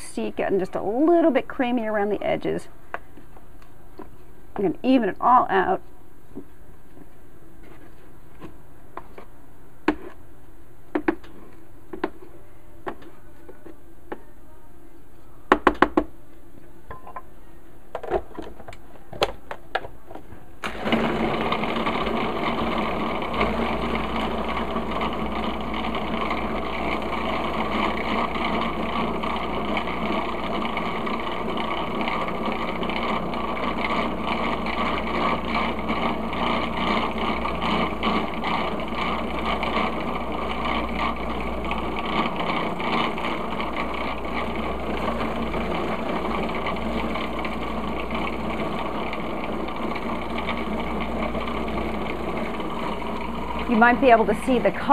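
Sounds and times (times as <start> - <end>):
food processor motor blending: 20.6 - 54.9.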